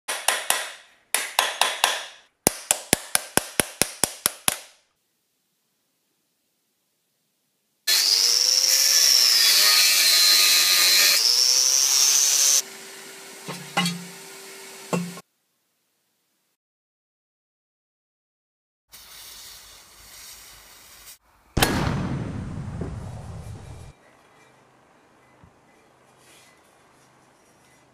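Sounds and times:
power tool cutting steel: 7.9 - 15.2
hammer striking metal anvil: 13.5 - 14.1, 14.9 - 15.2.

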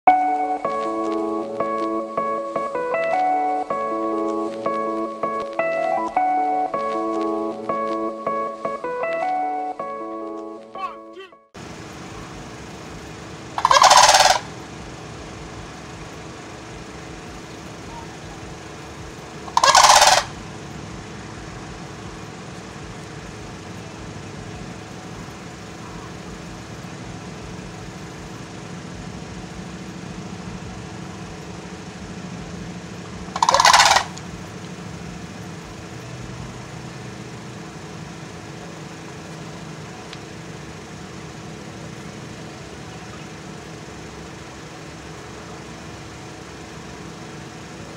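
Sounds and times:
crane calls: 10.8 - 41.0
steady low hum: 11.6 - 47.9.

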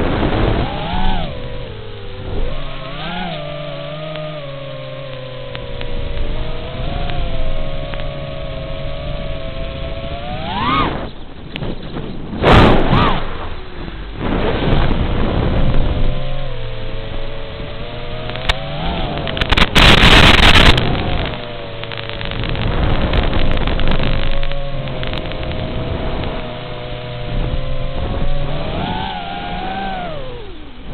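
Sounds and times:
drone motors whining: 0.0 - 30.9
wind rushing bursts: 9.9 - 28.9.

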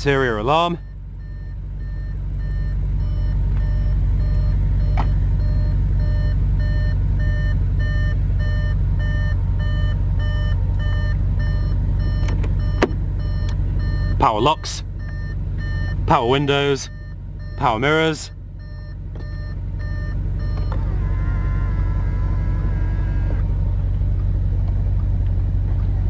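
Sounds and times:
low rumble: 0.2 - 14.2, 18.3 - 26.0
car warning chime beeping: 0.2 - 20.8.

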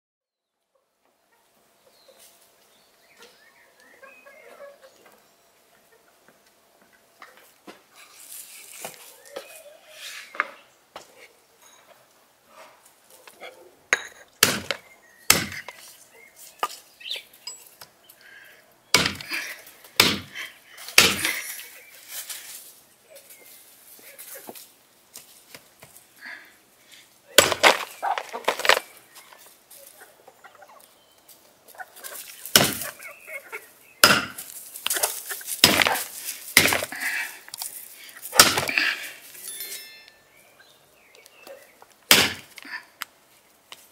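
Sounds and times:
cleaver chopping on wooden block: 14.4 - 15.7, 18.9 - 19.3, 20.0 - 20.3, 21.0 - 21.3, 27.4 - 27.8, 32.5 - 32.8, 34.0 - 34.4, 35.6 - 36.0, 36.6 - 36.9, 38.4 - 38.8, 42.1 - 42.5.

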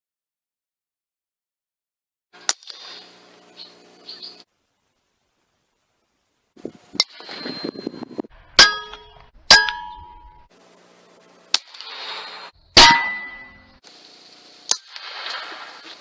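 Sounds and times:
metallic ring: 7.0 - 8.0, 8.6 - 10.5, 12.1 - 13.8.

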